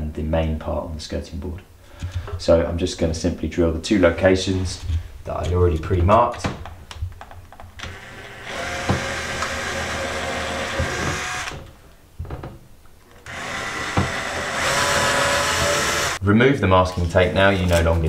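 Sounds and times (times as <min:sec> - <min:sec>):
cordless drill boring into wood: 0:07.8 - 0:11.6, 0:13.2 - 0:16.2.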